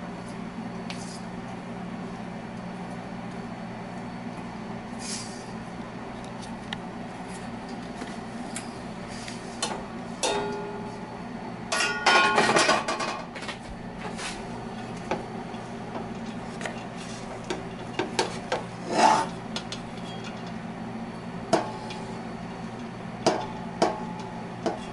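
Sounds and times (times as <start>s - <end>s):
steady low hum: 0.0s - 24.9s
spatula scraping frying pan: 18.8s - 19.4s.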